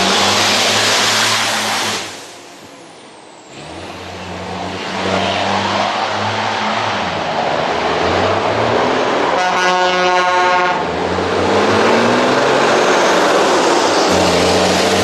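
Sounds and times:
truck diesel engine accelerating: 0:00.0 - 0:15.0
horn blowing steady note: 0:09.4 - 0:10.8.

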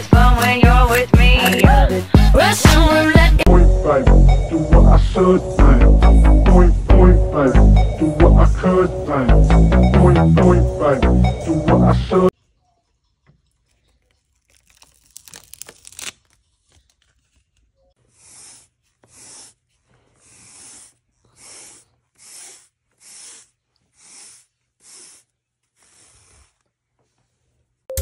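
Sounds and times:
plastic film crackling: 0:14.1 - 0:17.6
pet hair remover scraping carpet: 0:18.0 - 0:26.7.

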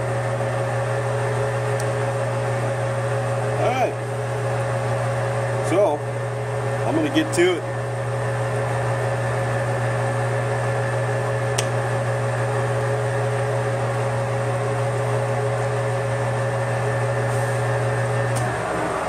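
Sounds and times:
metal lathe running: 0:16.7 - 0:19.0.

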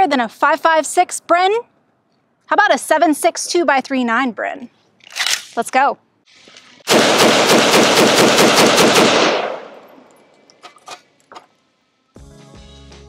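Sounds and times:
suppressed rifle shots: 0:06.9 - 0:10.0.

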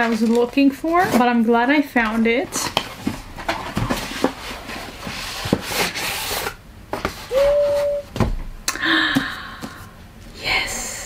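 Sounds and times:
short held tone: 0:07.3 - 0:08.1.

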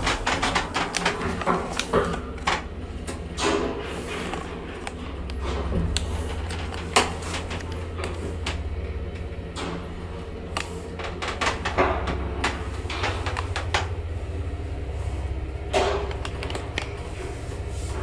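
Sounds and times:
clicks and knocks in elevator shaft: 0:00.0 - 0:14.5
elevator hum: 0:00.0 - 0:18.0.

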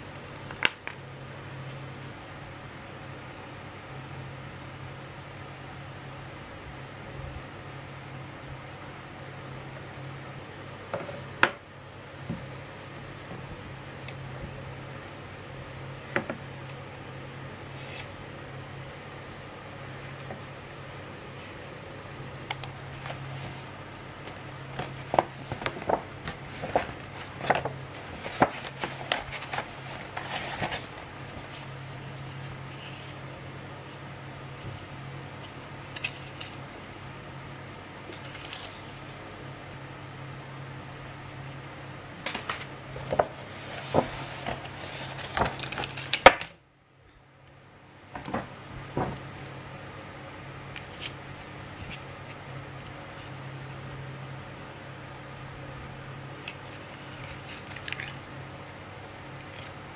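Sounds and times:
steady low hum: 0:00.0 - 0:59.9
paper crinkling and rustling: 0:24.3 - 0:33.2, 0:38.1 - 0:39.4, 0:42.3 - 0:46.4, 0:56.4 - 0:58.3.

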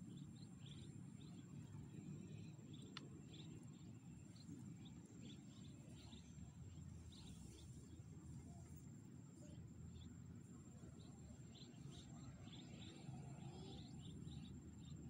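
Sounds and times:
low steady rumble: 0:00.0 - 0:15.0
faint click: 0:02.8 - 0:03.2.

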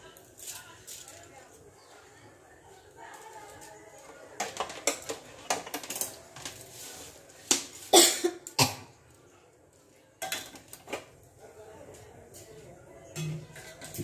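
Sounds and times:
kitchen utensils clattering: 0:04.0 - 0:06.7, 0:10.2 - 0:11.2, 0:13.1 - 0:14.0.

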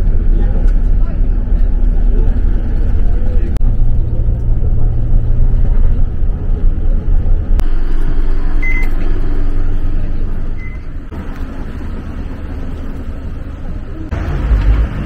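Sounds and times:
bus engine low rumble: 0:00.0 - 0:15.0
street background: 0:00.0 - 0:15.0
short electronic beeps: 0:08.6 - 0:09.0, 0:10.6 - 0:10.9.

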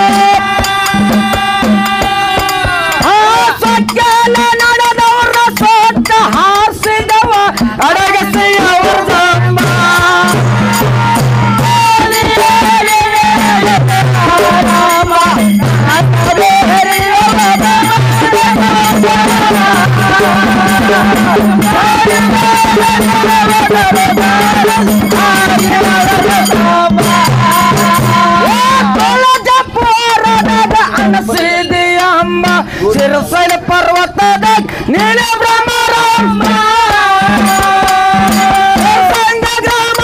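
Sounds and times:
person singing melody: 0:00.0 - 0:40.0
rattling fast percussion: 0:00.0 - 0:40.0
repeating bass pattern: 0:05.5 - 0:35.2.

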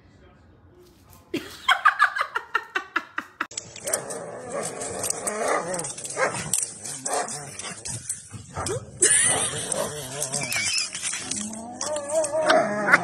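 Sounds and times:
dog whines: 0:09.9 - 0:13.0.

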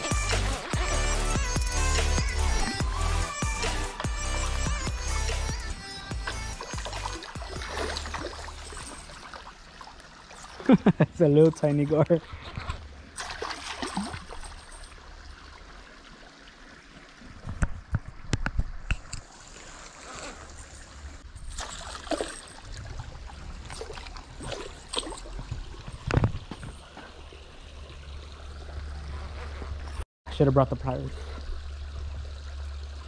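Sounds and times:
fish splashing at water surface: 0:06.2 - 0:10.7, 0:13.2 - 0:15.0, 0:21.5 - 0:26.1.

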